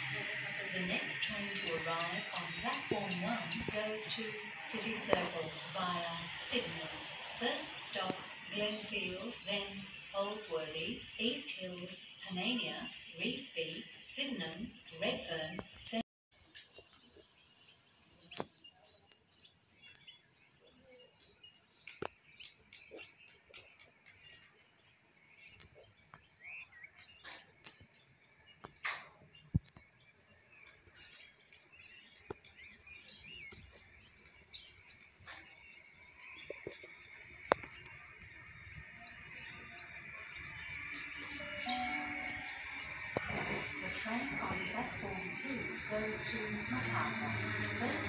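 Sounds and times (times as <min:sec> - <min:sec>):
electric train approaching: 0:00.0 - 0:14.4, 0:38.3 - 0:48.0
birds chirping and calling: 0:00.0 - 0:15.8, 0:16.5 - 0:48.0.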